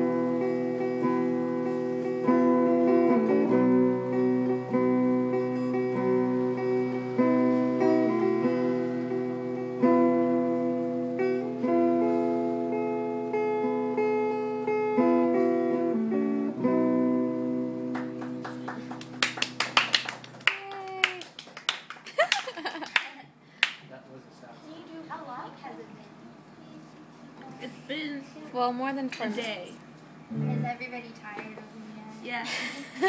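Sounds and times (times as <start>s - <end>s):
clean electric guitar chords: 0.0s - 19.0s, 30.3s - 30.8s
scattered clapping: 17.9s - 23.9s.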